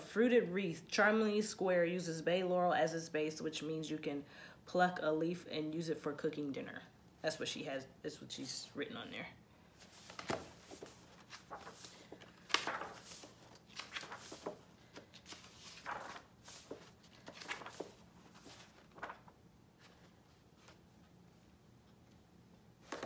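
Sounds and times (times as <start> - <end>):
book pages turning: 9.8 - 21.2, 22.8 - 23.0.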